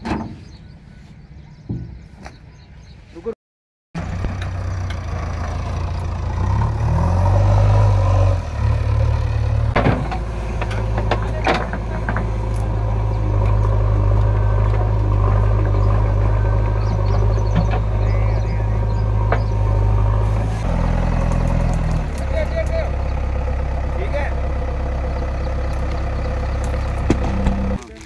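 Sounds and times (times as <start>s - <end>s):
diesel engine under load: 4.0s - 28.0s
sharp knocks: 27.0s - 27.7s.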